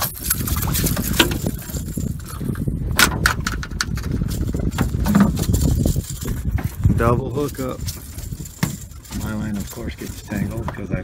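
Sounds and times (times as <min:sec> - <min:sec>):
fish flopping on metal deck: 0:00.0 - 0:07.0
wind rumble on microphone: 0:00.0 - 0:11.0.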